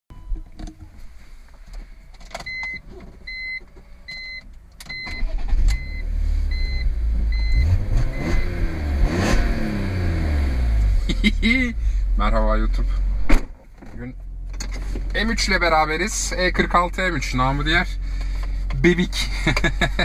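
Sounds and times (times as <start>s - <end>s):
dashboard warning chime beeping: 2.4s - 8.6s
car engine starting and revving: 4.9s - 13.3s.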